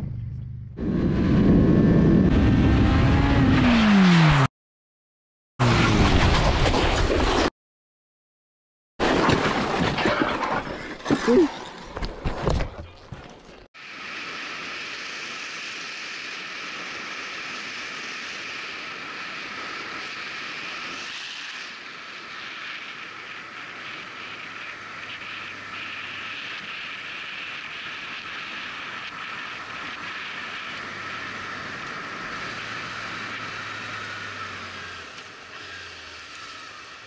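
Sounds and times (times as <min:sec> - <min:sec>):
faint low engine hum: 0:00.0 - 0:01.6
wind rush over microphone: 0:00.0 - 0:03.4.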